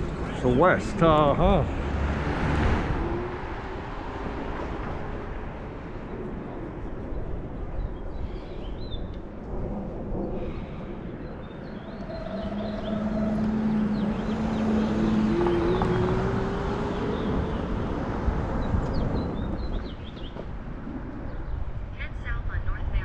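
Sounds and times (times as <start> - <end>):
scooter engine tone rising: 0.0 - 5.1, 11.3 - 19.9
wind and road noise: 0.0 - 23.0
birds chirping: 10.3 - 20.5.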